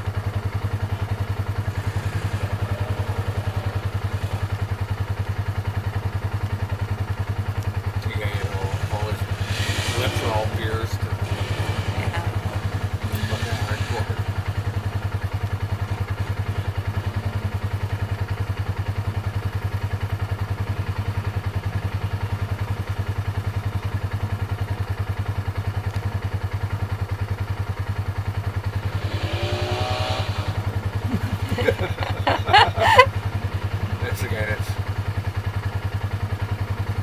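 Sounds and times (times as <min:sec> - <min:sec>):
quad bike engines idling: 0:00.0 - 0:37.0
engine revving with rising whine: 0:01.7 - 0:04.6, 0:08.0 - 0:14.2, 0:28.7 - 0:33.1.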